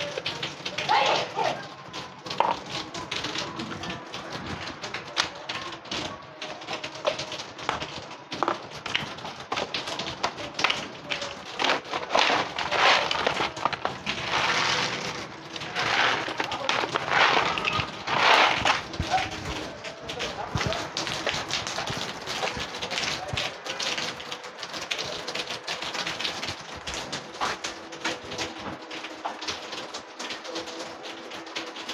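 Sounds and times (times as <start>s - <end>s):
rustling bursts: 6.7s - 23.1s
cats crunching dry kibble: 6.7s - 23.4s.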